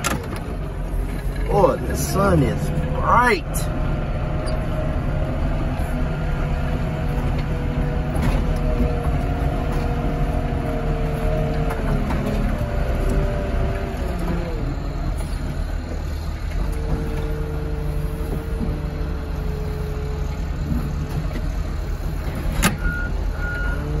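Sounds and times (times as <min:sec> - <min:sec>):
diesel engine rumble: 0:00.0 - 0:24.0.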